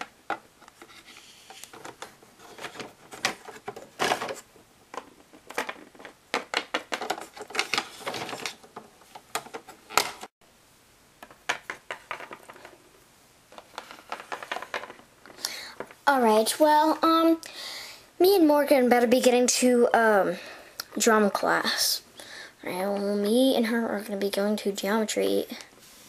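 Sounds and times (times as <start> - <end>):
plastic figures clicking on hard floor: 5.0 - 10.3, 11.2 - 12.8, 13.6 - 15.0.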